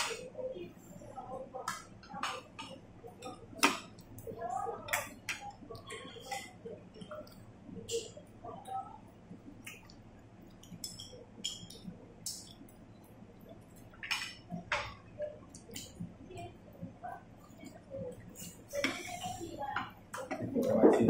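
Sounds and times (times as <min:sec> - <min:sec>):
chopsticks clinking on bowls: 0:10.6 - 0:12.6.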